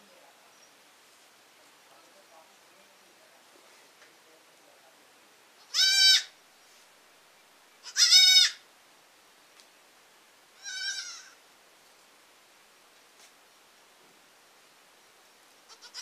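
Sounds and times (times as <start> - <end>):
goat kid bleating: 5.6 - 6.4, 7.8 - 8.6, 10.6 - 11.4, 15.7 - 16.0.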